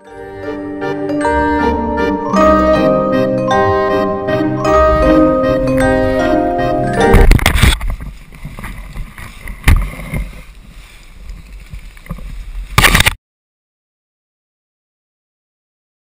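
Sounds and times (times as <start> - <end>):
background music: 0.0 - 7.4.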